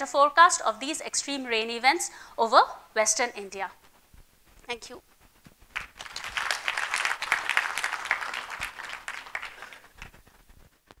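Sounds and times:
audience applauding: 5.7s - 10.3s.

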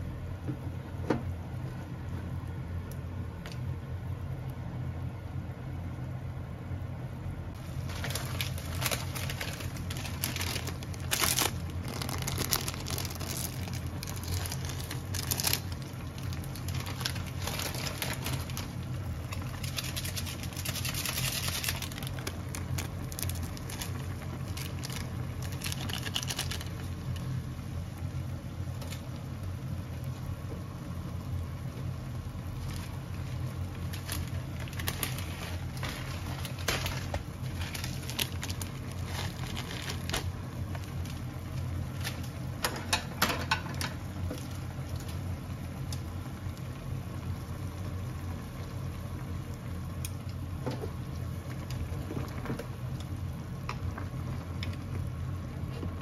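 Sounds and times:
steady low hum: 0.0s - 56.0s
water boiling and bubbling: 0.0s - 56.0s
plastic sachets crinkling: 7.6s - 27.6s, 32.4s - 45.2s.

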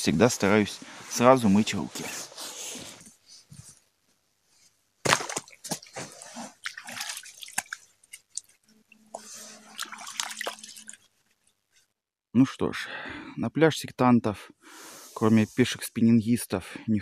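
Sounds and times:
hands splashing in water: 5.1s - 11.1s
water dripping: 5.2s - 11.6s.

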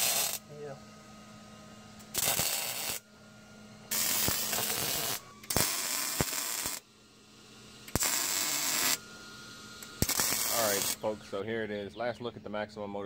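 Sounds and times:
welder crackling: 0.0s - 0.5s, 2.0s - 3.0s, 3.9s - 6.8s, 7.8s - 11.8s.

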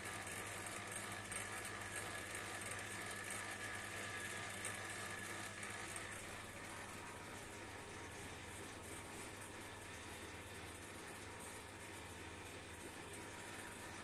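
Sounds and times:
noodle machine humming: 0.0s - 14.0s.

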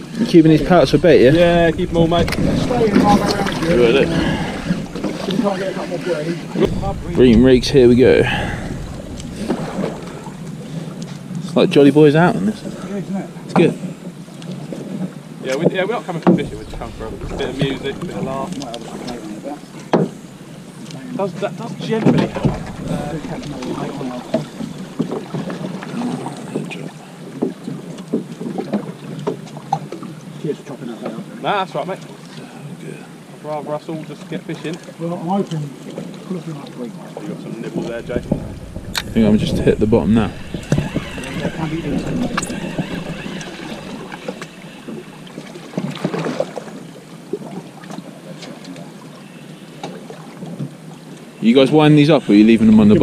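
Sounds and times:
wind buffeting microphone: 0.0s - 15.4s, 16.0s - 27.9s, 37.4s - 46.0s
water lapping against boat hull: 0.0s - 53.0s.

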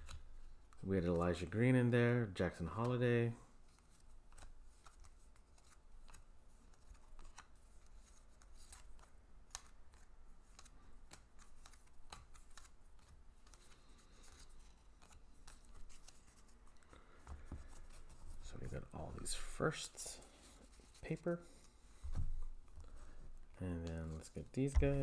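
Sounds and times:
paper cards flipped by hand: 3.7s - 18.8s.

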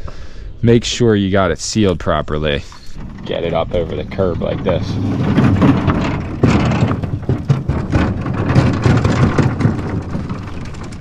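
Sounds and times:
metal boat hull scraping on concrete: 1.8s - 11.0s.

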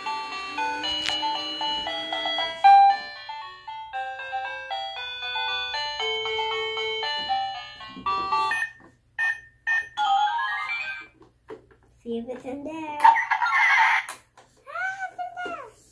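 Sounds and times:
electronic toy melody: 0.0s - 11.1s.

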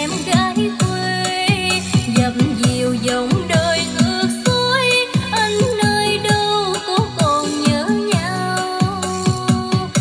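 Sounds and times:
person singing: 0.0s - 10.0s
drum beat: 1.5s - 4.7s.

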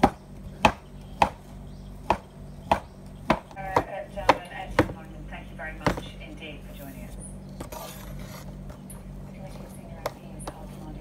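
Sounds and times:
cleaver chopping on cutting board: 0.0s - 5.0s.

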